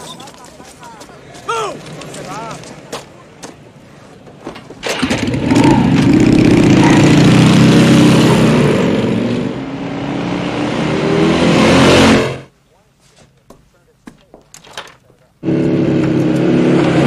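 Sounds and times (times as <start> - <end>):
motorcycle engine running: 4.9 - 9.0.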